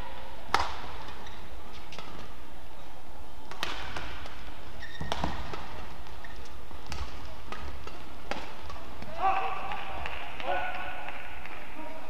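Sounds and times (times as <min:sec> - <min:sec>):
low hall hum: 0:00.0 - 0:12.0
rackets striking shuttlecock: 0:00.5 - 0:01.2, 0:03.5 - 0:11.6
shoe squeaks on court: 0:04.8 - 0:05.5.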